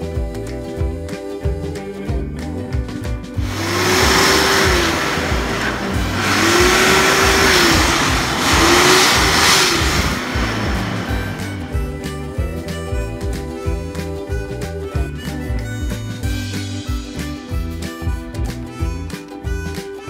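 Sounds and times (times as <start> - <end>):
electric hand dryer blowing: 3.4 - 11.7.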